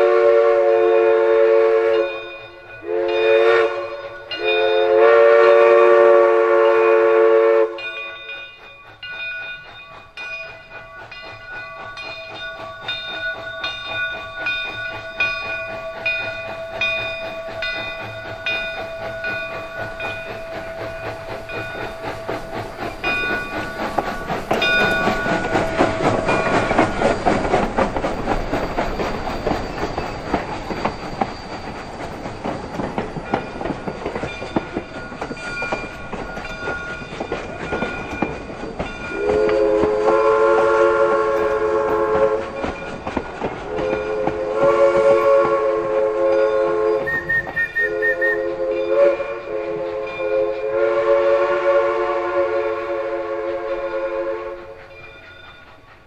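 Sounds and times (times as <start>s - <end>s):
steam whistle chord: 0.0s - 8.3s, 39.1s - 42.6s, 43.7s - 55.0s
locomotive bell ringing: 1.4s - 51.4s, 53.6s - 56.0s
train wheels clattering over rail joints: 7.8s - 51.2s, 53.1s - 56.0s.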